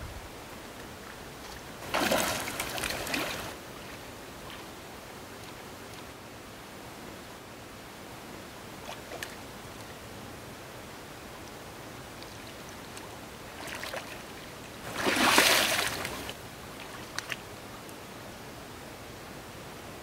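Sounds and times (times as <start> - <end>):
water splashing: 1.4 - 4.0, 13.5 - 17.4
faint clicks: 17.0 - 18.0.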